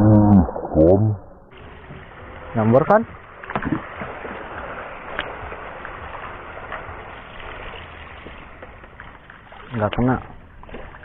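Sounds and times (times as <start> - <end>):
open-air hiss: 1.5 - 10.6.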